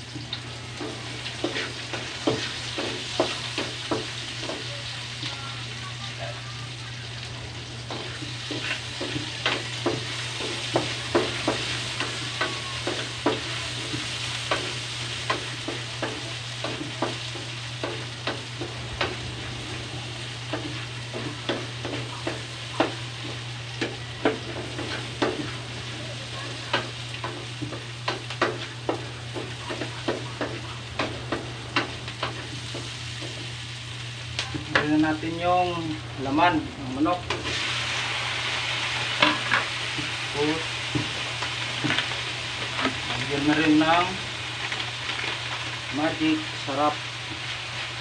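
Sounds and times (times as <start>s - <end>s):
food sizzling in a wok: 0.0s - 48.0s
steady low hum: 0.1s - 43.6s
wooden spatula scraping a wok: 1.2s - 3.7s.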